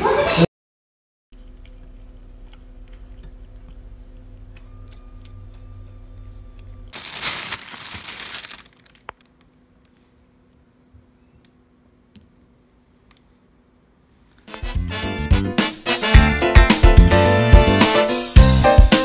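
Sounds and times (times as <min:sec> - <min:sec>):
steady low hum: 0:01.4 - 0:07.1
plastic bag crinkling: 0:06.9 - 0:09.4
click: 0:13.1 - 0:13.3.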